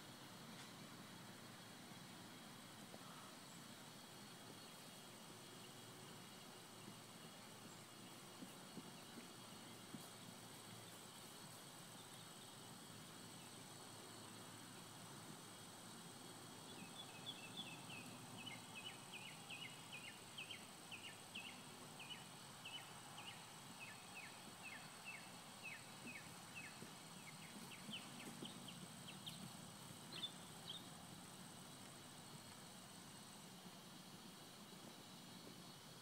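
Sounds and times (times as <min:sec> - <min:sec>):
faint background hiss: 0:00.0 - 0:36.0
bird chirping: 0:16.7 - 0:29.5, 0:30.1 - 0:31.0.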